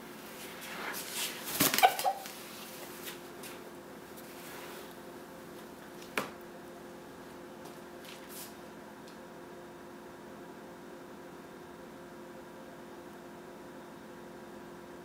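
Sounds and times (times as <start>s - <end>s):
faint steady hum: 0.0s - 15.0s
rooster flapping wings: 1.2s - 2.8s.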